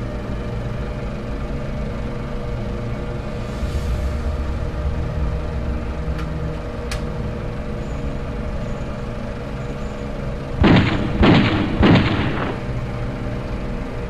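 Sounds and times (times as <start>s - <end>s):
low steady drone: 0.0s - 14.0s
loud bangs with ringing tail: 10.6s - 13.0s.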